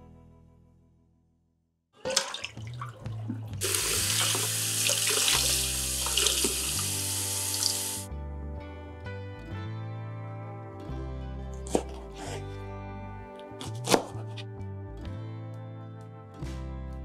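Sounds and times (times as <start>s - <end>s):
water splashing into pan: 2.0s - 8.0s
soft background music: 2.0s - 17.0s.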